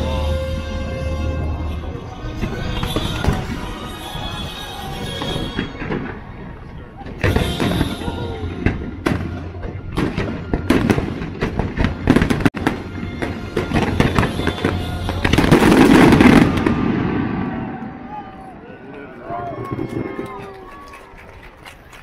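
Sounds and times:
music soundtrack: 0.0s - 6.6s, 7.2s - 17.2s
fireworks popping and booming: 2.2s - 17.9s, 19.5s - 20.9s.

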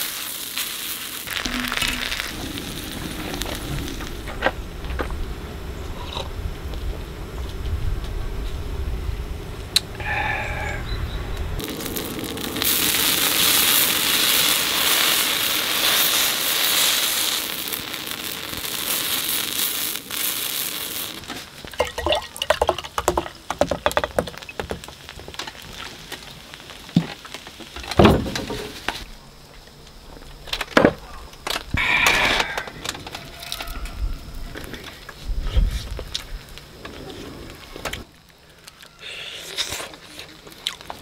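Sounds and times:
food sizzling in oil: 0.0s - 4.7s, 11.1s - 23.6s
beer pouring into glass: 21.7s - 23.4s.

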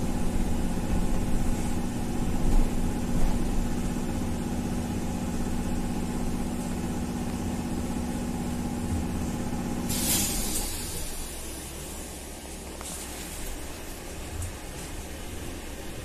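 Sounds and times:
trolleybus electric hum: 0.0s - 16.0s
air release hiss: 9.8s - 13.4s.

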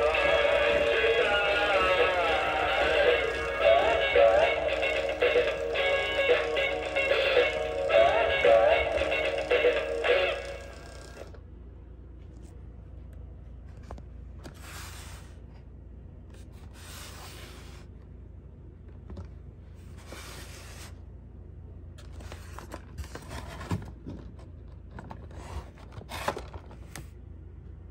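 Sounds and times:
cardboard rubbing and scraping: 14.4s - 15.5s, 16.4s - 17.9s, 19.8s - 21.0s, 22.2s - 24.0s, 25.2s - 26.4s.

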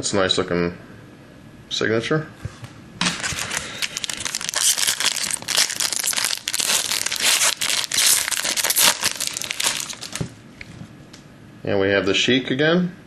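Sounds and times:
foil wrapper crackling: 3.1s - 10.3s.

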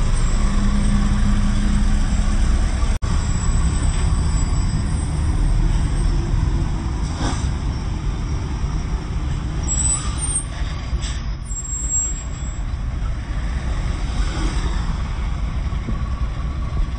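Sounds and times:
truck diesel engines idling: 0.0s - 16.9s.

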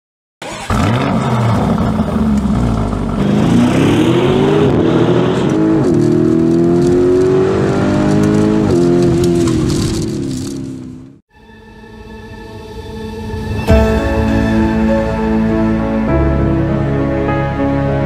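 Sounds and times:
car engine accelerating: 0.4s - 11.2s.

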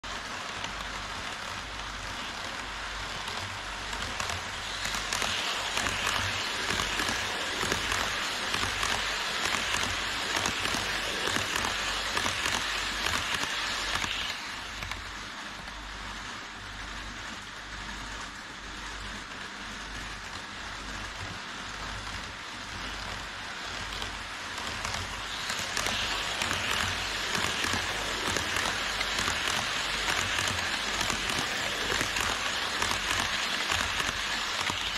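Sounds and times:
model trains rattling hiss: 0.0s - 34.9s.

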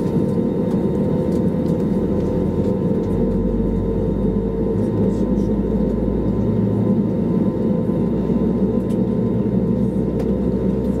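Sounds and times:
aircraft cabin engine hum: 0.0s - 11.0s.

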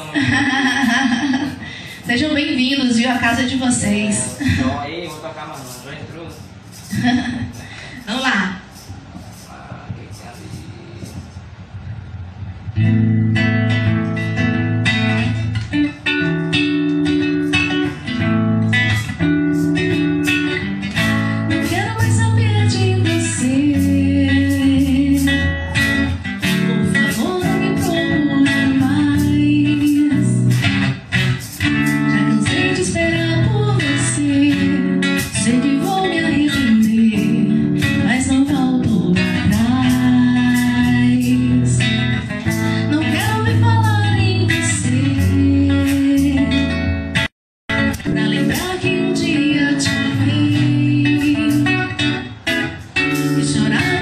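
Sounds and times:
guitar strummed and plucked: 11.8s - 54.0s
woman singing: 21.0s - 25.6s, 26.4s - 30.7s, 32.0s - 46.8s, 48.0s - 52.4s, 53.2s - 54.0s.

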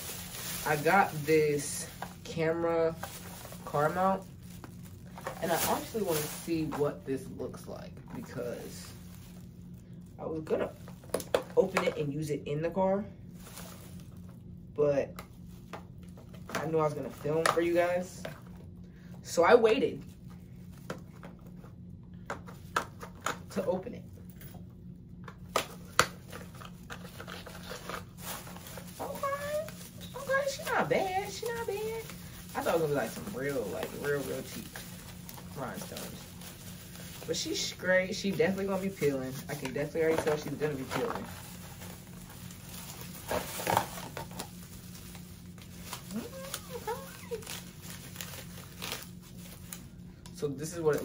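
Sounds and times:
packaging rustling and crinkling: 0.0s - 12.0s, 13.3s - 14.5s, 25.2s - 50.0s.

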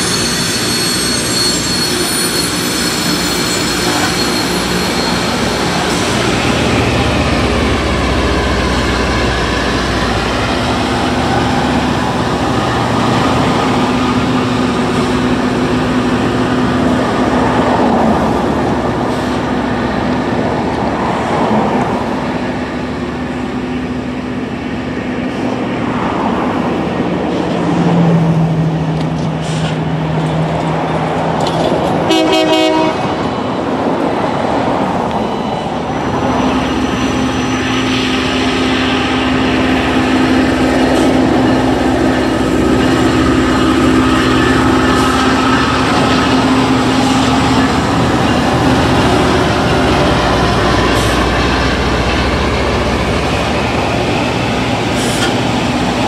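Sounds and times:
grinding stones roaring on rail: 36.4s - 56.0s.

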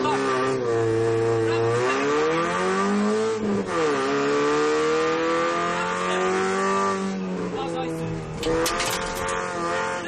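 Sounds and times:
car engine accelerating: 4.4s - 10.0s.

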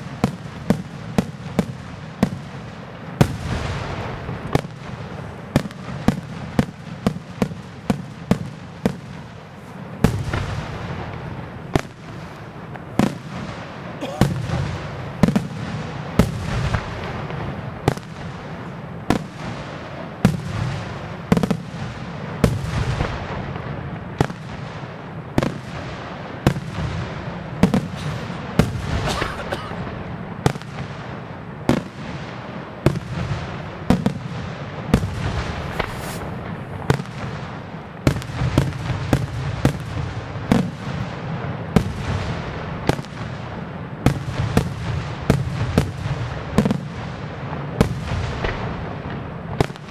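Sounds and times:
firework crackling and rumble: 0.0s - 49.9s
firework shells bursting: 35.0s - 37.4s.

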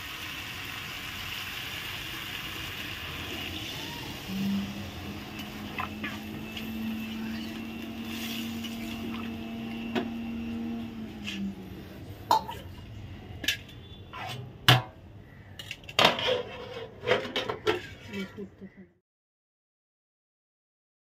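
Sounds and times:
metal spatula scraping a pan: 7.4s - 9.0s, 15.6s - 18.5s.

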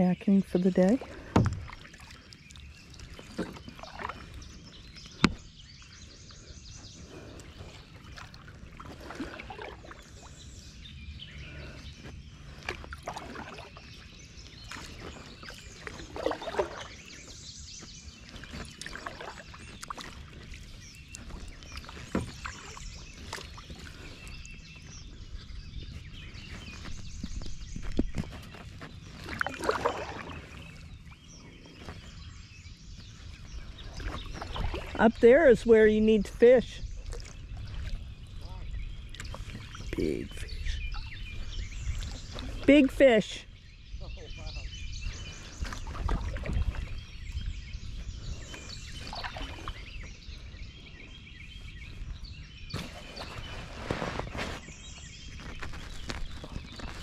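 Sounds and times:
paddle splashing in water: 1.0s - 5.8s, 7.0s - 10.7s, 12.4s - 43.2s, 45.1s - 50.3s, 52.6s - 57.0s.

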